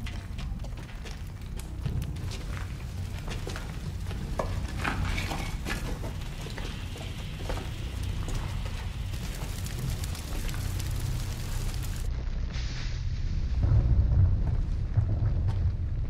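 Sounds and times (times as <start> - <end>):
small clicks and ticks: 0.0 - 12.1
fire crackling: 0.0 - 16.0
steady low rumble: 0.0 - 16.0.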